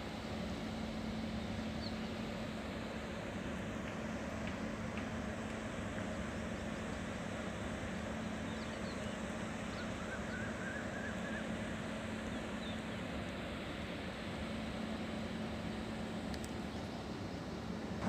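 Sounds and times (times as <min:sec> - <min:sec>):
constant low hum: 0:00.0 - 0:18.0.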